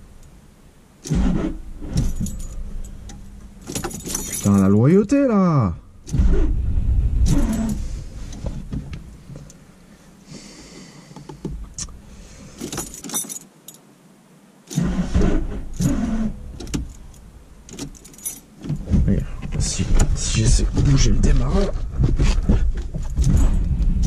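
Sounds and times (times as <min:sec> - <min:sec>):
low thuds and handling knocks: 0:01.3 - 0:04.8, 0:06.0 - 0:09.5, 0:15.1 - 0:24.0
keyring jangling: 0:03.7 - 0:04.7, 0:12.6 - 0:13.8, 0:16.9 - 0:18.5.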